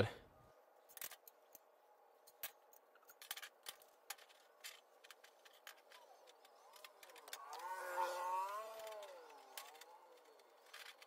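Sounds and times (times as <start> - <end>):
faint wavering tone: 5.7 - 11.0.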